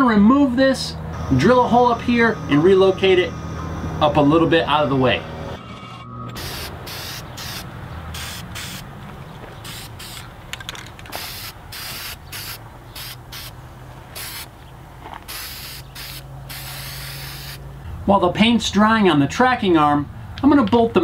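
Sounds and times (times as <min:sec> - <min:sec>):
spray paint can spraying: 0:06.4 - 0:08.9, 0:09.6 - 0:10.3, 0:11.1 - 0:14.5, 0:15.2 - 0:17.6.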